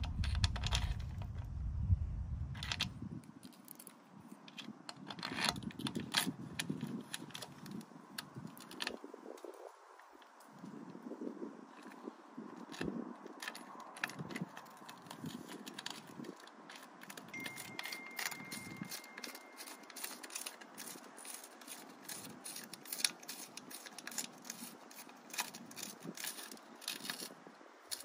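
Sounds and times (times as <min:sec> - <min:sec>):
fingers clicking and scraping metal parts: 0:03.4 - 0:09.0, 0:11.7 - 0:28.0.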